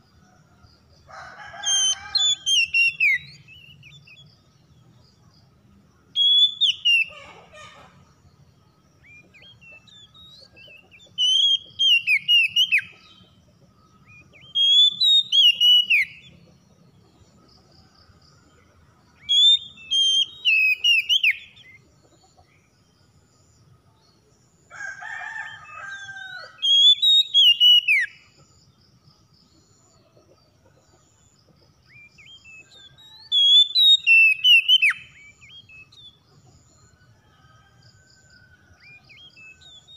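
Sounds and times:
bird singing high whistled notes: 0:01.7 - 0:04.2, 0:06.1 - 0:07.2, 0:09.1 - 0:13.1, 0:14.1 - 0:16.3, 0:19.2 - 0:21.8, 0:26.6 - 0:28.2, 0:31.9 - 0:36.2
lower bird call: 0:14.1 - 0:16.5, 0:31.9 - 0:37.0.

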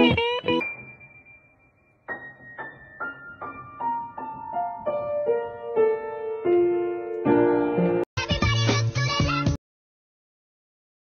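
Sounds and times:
piano playing falling notes: 0:00.0 - 0:08.1.

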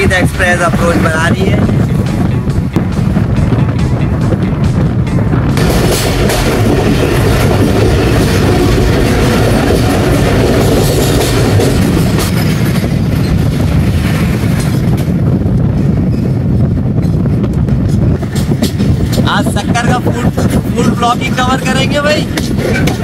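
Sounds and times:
passing train alongside: 0:00.0 - 0:23.0
train rolling rumble: 0:00.0 - 0:23.0
wheel clatter on rails: 0:05.5 - 0:23.0.

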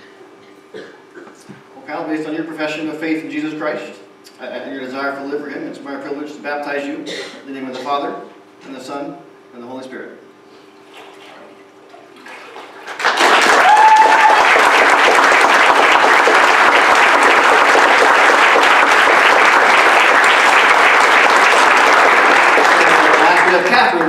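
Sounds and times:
congregation applauding: 0:12.4 - 0:24.0
high cheer: 0:13.0 - 0:23.7.

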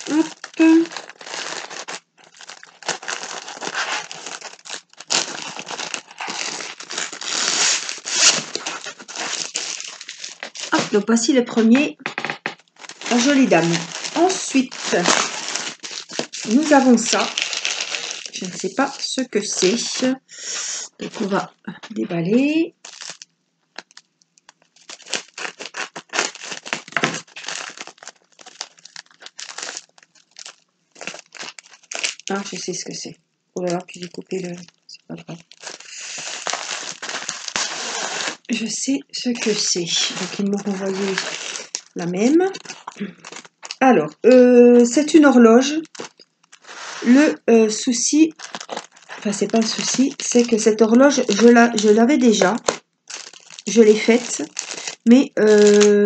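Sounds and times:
scissors cutting plastic mailer: 0:00.0 - 0:11.8, 0:12.8 - 0:20.0, 0:24.8 - 0:32.4, 0:45.1 - 0:56.0
plastic sleeve crinkling: 0:00.0 - 0:56.0.

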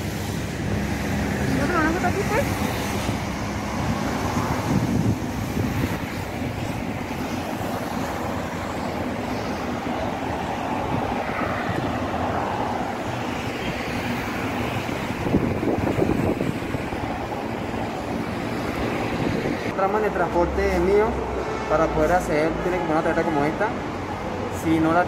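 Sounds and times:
road traffic: 0:00.0 - 0:25.0.

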